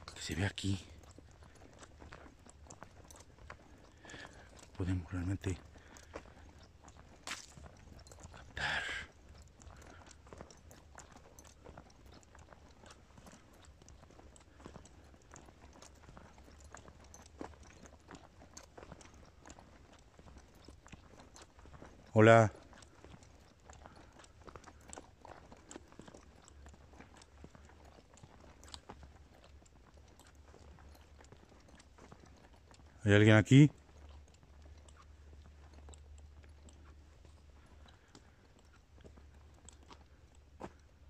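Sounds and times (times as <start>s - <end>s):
small clicks and crackles: 0.0s - 41.0s.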